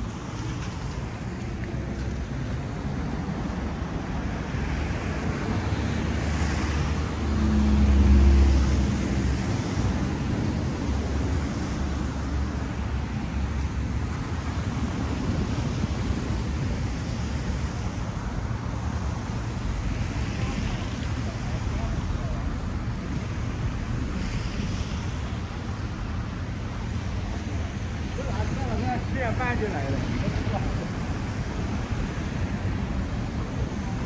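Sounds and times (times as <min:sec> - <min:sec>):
vehicle engine rumble passing: 0:00.0 - 0:16.2
road traffic hum: 0:00.0 - 0:34.0.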